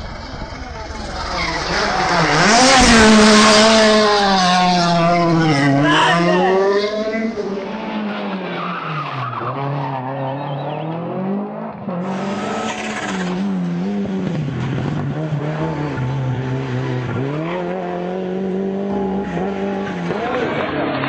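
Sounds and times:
rally car engines revving: 0:00.0 - 0:21.0.

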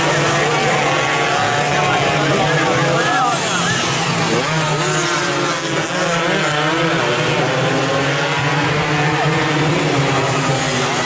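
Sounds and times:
racing motorcycles passing: 0:00.0 - 0:11.0.

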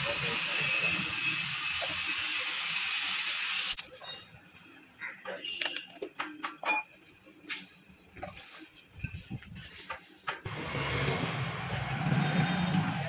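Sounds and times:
vehicle engine hum: 0:10.5 - 0:13.0.

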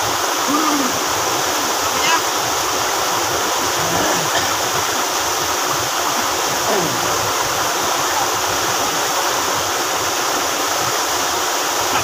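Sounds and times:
stream rushing over boulders: 0:00.0 - 0:12.0.

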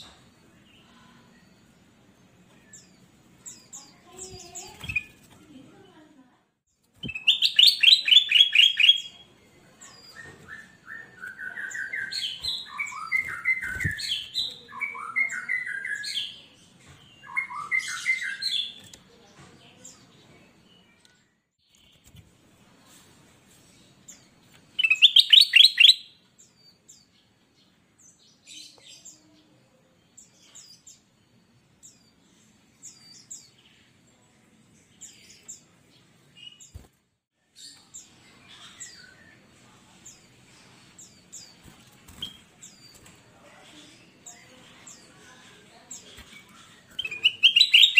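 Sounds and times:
bird singing: 0:07.0 - 0:09.2, 0:09.9 - 0:16.5, 0:24.7 - 0:29.4, 0:46.0 - 0:47.9.

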